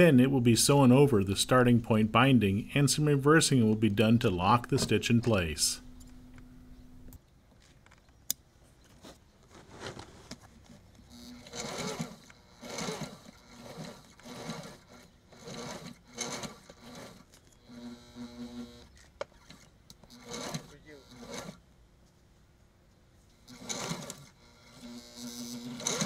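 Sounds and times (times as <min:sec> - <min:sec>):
sewing machine stitching: 0:11.1 - 0:21.6, 0:23.4 - 0:26.0.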